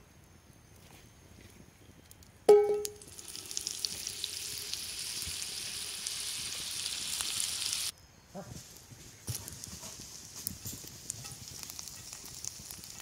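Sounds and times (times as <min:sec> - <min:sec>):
metallic clang: 0:02.5 - 0:03.0
fat sizzling in skillet: 0:02.5 - 0:07.9, 0:09.3 - 0:13.0.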